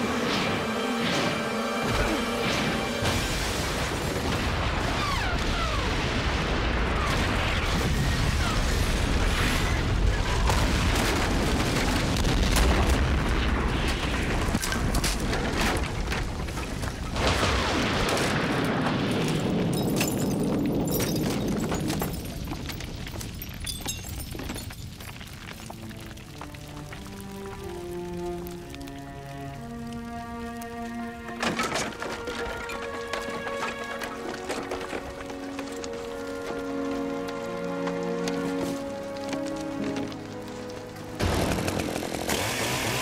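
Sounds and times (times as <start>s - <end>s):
debris falling: 0.0s - 43.0s
fire crackling: 0.0s - 43.0s
deep booming explosion: 2.4s - 14.9s.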